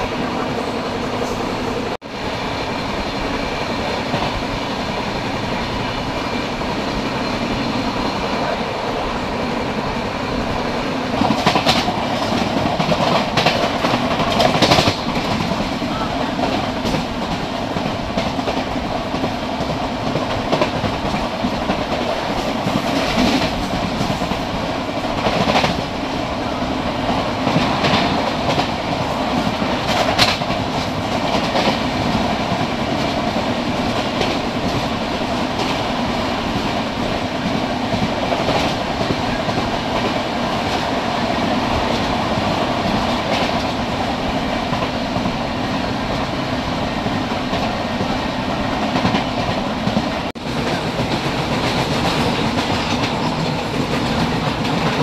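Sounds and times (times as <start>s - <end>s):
train wheels rumbling on rail: 0.0s - 55.0s
wheels clacking over rail joints: 11.1s - 55.0s.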